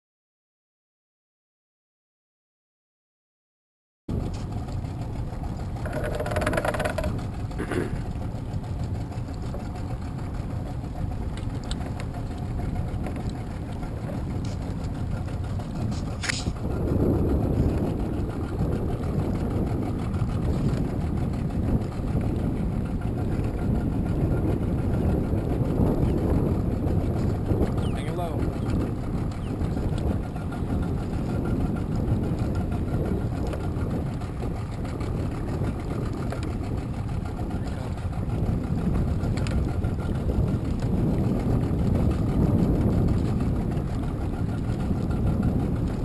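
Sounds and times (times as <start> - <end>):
boat motor idling: 4.1 - 46.0
water noise: 4.1 - 46.0
wind: 4.1 - 46.0
sharp click: 16.2 - 16.6.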